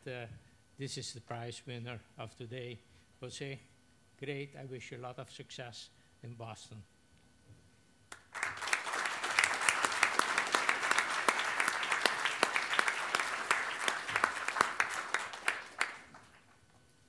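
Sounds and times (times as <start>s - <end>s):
audience applauding: 8.1s - 16.6s
close claps: 8.1s - 16.8s.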